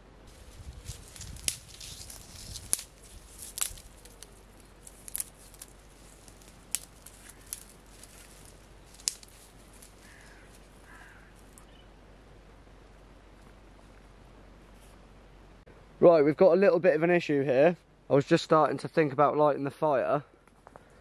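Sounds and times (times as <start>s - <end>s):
dry reed stems snapping: 0.3s - 11.7s.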